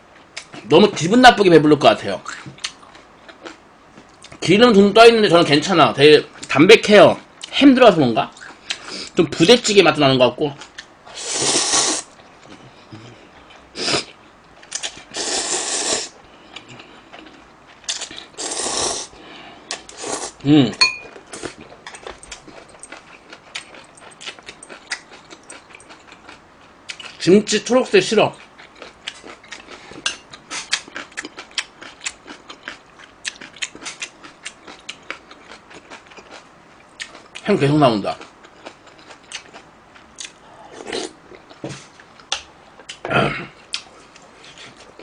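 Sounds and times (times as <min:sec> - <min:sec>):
wet chewing and mouth clicks: 0:02.3 - 0:04.4, 0:16.5 - 0:18.4, 0:21.1 - 0:27.2, 0:28.4 - 0:37.4, 0:38.2 - 0:40.4
person slurping noodles: 0:11.1 - 0:12.1, 0:15.1 - 0:16.2, 0:18.4 - 0:20.4
spoon clinking in pot: 0:20.8 - 0:21.2.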